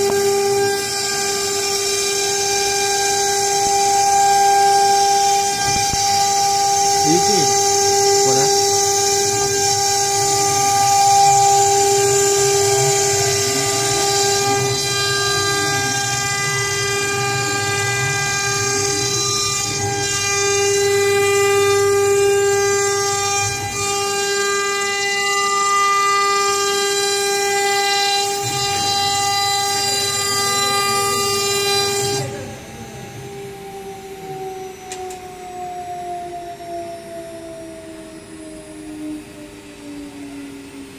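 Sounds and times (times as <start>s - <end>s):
router spindle high-pitched whine: 0.0s - 40.9s
motors whirring: 4.8s - 22.4s.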